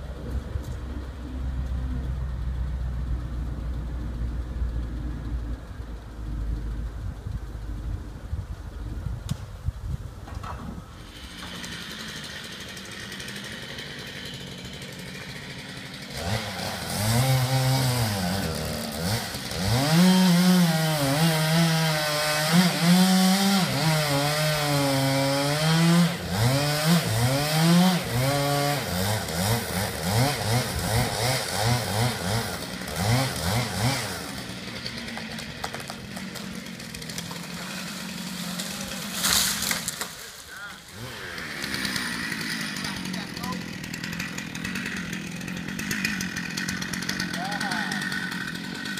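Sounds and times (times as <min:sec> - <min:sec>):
chainsaw cutting tree trunk: 0:10.5 - 0:48.9
tree falling to the ground: 0:35.0 - 0:41.0.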